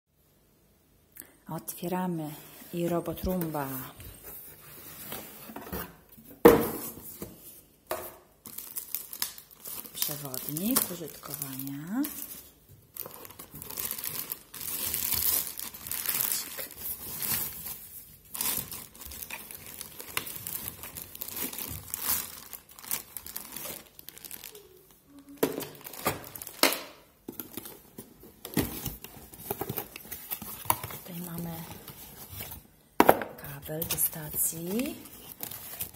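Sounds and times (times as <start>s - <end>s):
plastic wrap crinkling: 8.4s - 32.8s, 33.4s - 35.9s.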